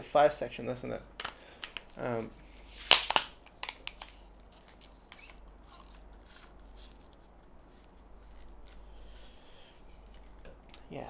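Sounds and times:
tripod legs rubbing and scraping: 4.5 - 10.4.

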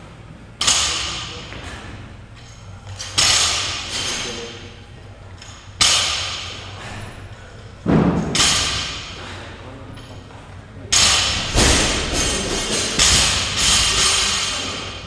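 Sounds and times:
barbells thudding on rubber floor: 5.8 - 7.2, 7.8 - 9.2, 10.9 - 15.0.

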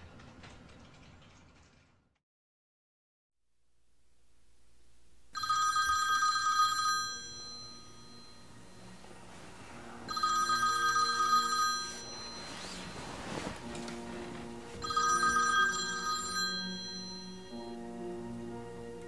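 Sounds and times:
phone ringing: 5.4 - 17.8.

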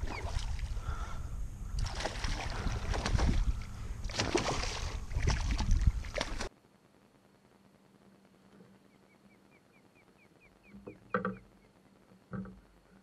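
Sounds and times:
steady low rumble: 0.0 - 10.7
fish thrashing and splashing: 1.8 - 6.5.

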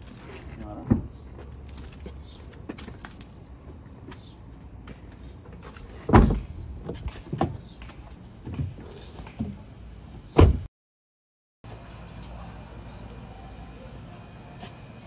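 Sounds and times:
car doors slamming: 6.1 - 6.5, 10.3 - 10.7.

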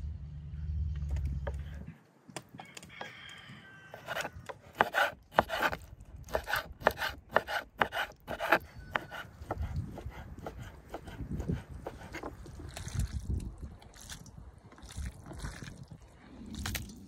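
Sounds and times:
knife chopping on wooden board: 4.0 - 12.3
wind rumble on microphone: 8.6 - 17.0.

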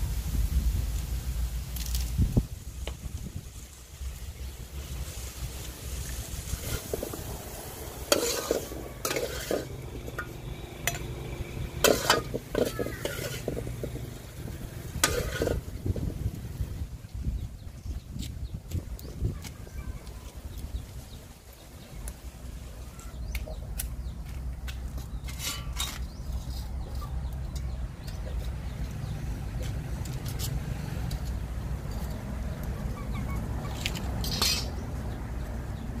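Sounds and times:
wind rumble on microphone: 0.0 - 9.1, 13.4 - 22.1
wood fire crackling: 0.0 - 16.8
chickens clucking: 6.5 - 15.8, 32.5 - 34.7.

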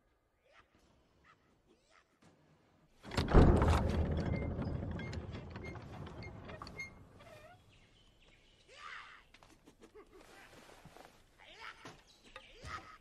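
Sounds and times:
rattling and clattering: 3.0 - 7.6.

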